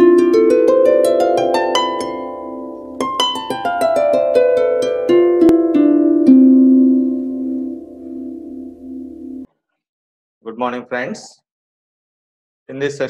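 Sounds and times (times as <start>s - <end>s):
plucked ringing notes: 0.0s - 9.5s.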